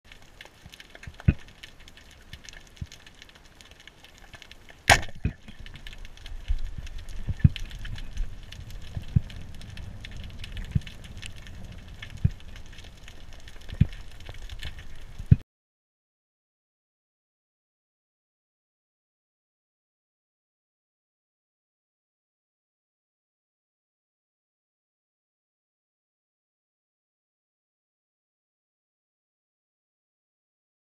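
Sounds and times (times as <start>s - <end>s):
speargun firing underwater: 4.9s - 5.4s
low rumble: 5.2s - 15.3s.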